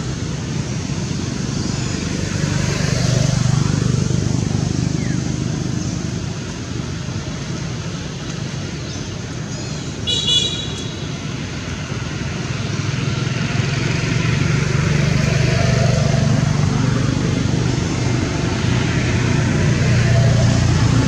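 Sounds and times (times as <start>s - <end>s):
vehicle engine and traffic rumble: 0.0s - 21.0s.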